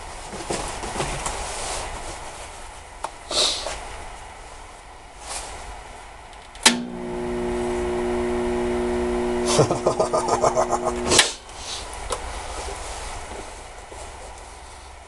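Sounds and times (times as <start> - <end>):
welder switch click: 6.4 - 7.0
welder humming: 6.7 - 11.3.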